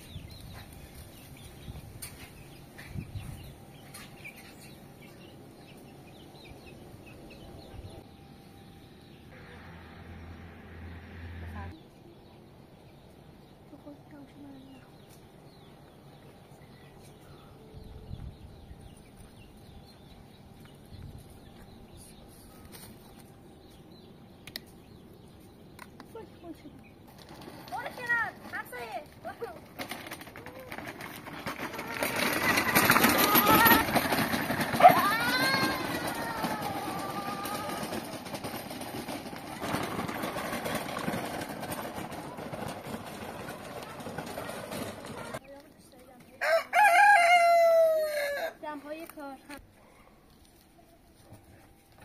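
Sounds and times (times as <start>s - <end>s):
small birds chirping: 0.0s - 10.4s, 11.6s - 29.8s, 45.2s - 46.6s
plastic wheels crunching over gravel: 26.1s - 49.6s.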